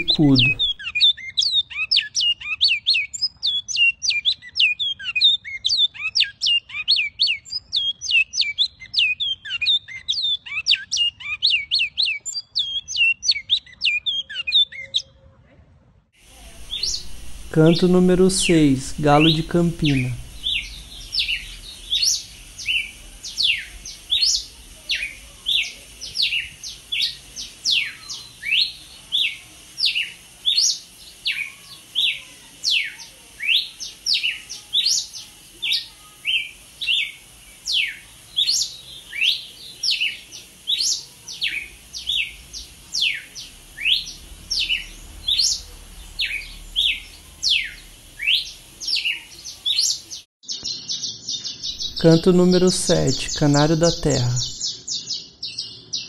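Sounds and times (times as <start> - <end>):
bird whistling descending notes: 16.5 - 18.0, 18.9 - 50.0.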